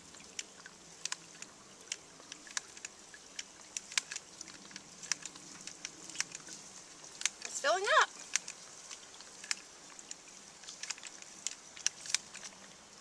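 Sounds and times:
hiss of running water: 0:00.0 - 0:13.0
hand pump clicks: 0:01.0 - 0:06.4.

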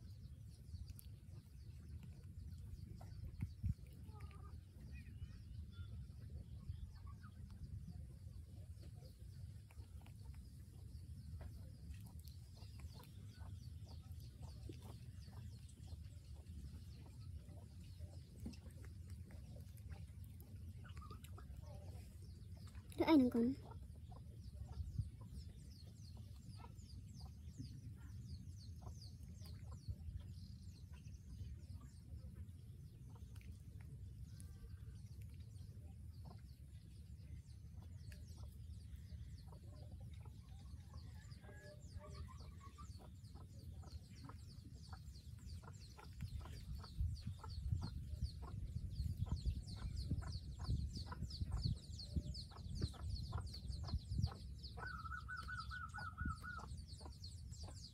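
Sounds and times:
birds chirping: 0:08.8 - 0:57.9
low microphone rumble: 0:34.2 - 0:57.9.

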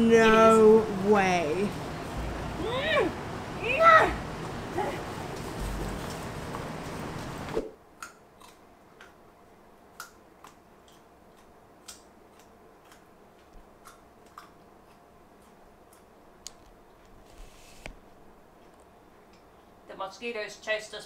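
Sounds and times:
street noise: 0:00.0 - 0:07.7
faint steady hum: 0:00.0 - 0:21.0.

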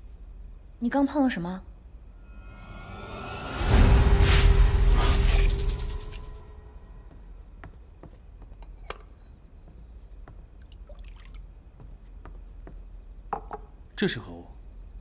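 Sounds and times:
water drips and splashes: 0:10.6 - 0:11.6.

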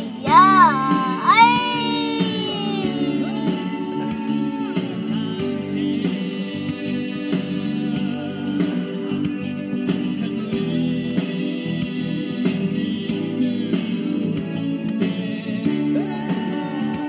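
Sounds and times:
choir-like voices singing chords: 0:00.0 - 0:17.0
high voice sliding down: 0:00.2 - 0:04.1.

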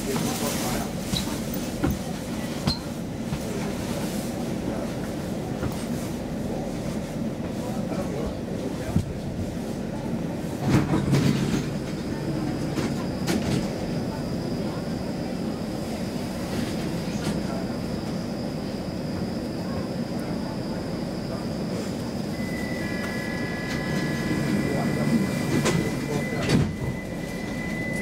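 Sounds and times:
train carriage rumbling hum: 0:00.0 - 0:28.0
faint high whine: 0:22.3 - 0:28.0
electronic multi-pitch tone: 0:22.4 - 0:28.0.

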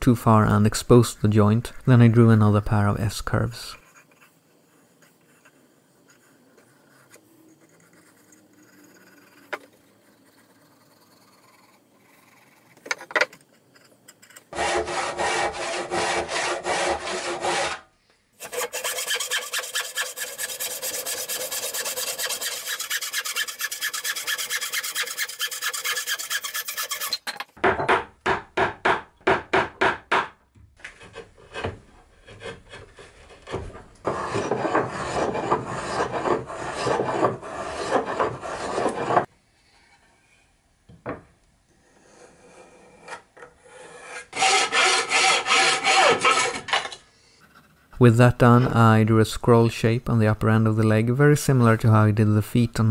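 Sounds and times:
pencil marking: 0:03.8 - 0:13.0, 0:18.4 - 0:27.2
rasp filing wood: 0:13.8 - 0:17.8, 0:18.4 - 0:27.2, 0:30.8 - 0:39.3, 0:42.0 - 0:46.7
bow saw cutting wood: 0:14.5 - 0:27.2, 0:30.8 - 0:39.3, 0:41.9 - 0:46.8.

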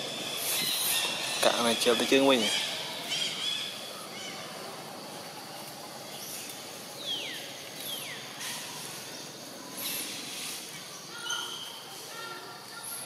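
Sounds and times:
high hissing bursts: 0:00.0 - 0:03.0, 0:08.3 - 0:12.2
woodland ambience: 0:00.0 - 0:13.0.

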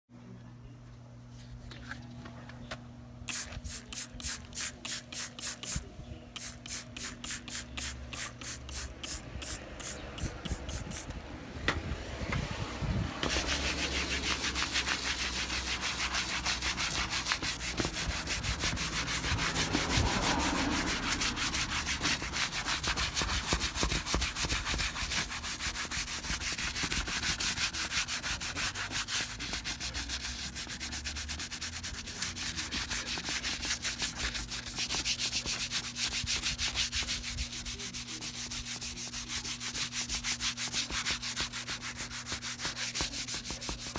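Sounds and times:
brush scrubbing wet surface: 0:13.2 - 0:43.9.

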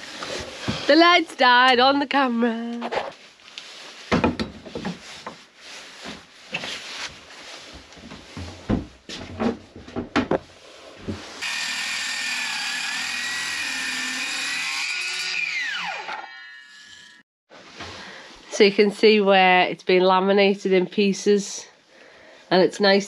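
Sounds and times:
circular saw cutting timber: 0:11.4 - 0:17.2
saw blade whine spinning down: 0:11.4 - 0:17.2.

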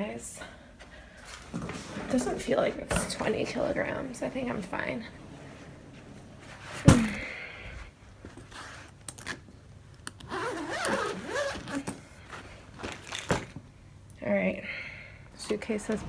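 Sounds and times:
zip and buckle clicks: 0:10.0 - 0:12.0.

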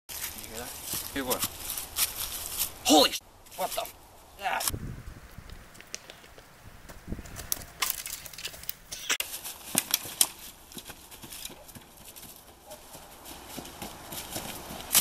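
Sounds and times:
running footsteps in dry leaves: 0:00.1 - 0:03.0, 0:09.2 - 0:15.0.

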